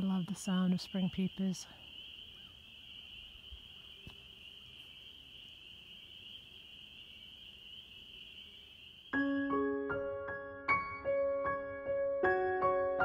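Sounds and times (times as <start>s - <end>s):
spring peepers trilling: 0.0s - 10.2s.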